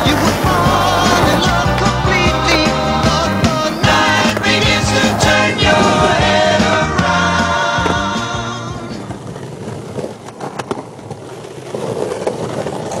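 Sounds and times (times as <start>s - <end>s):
skateboard clacks: 0.0s - 6.2s, 7.8s - 13.0s
soundtrack music with singing: 0.0s - 9.1s
skateboard wheels rolling on pavement: 0.0s - 13.0s.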